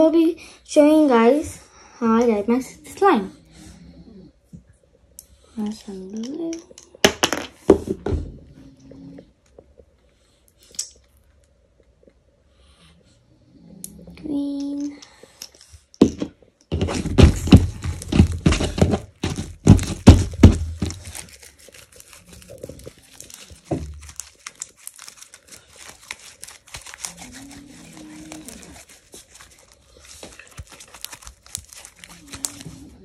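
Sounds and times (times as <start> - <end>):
slime squishing: 17.1 - 33.0.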